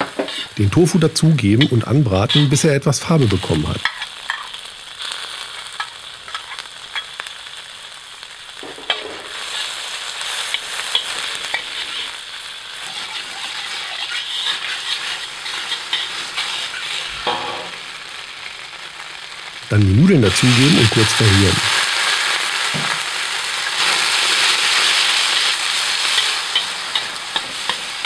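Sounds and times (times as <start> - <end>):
metal spatula scraping a wok: 0.0 - 0.6, 1.6 - 2.6, 12.8 - 17.8
food sizzling in hot oil: 0.0 - 28.0.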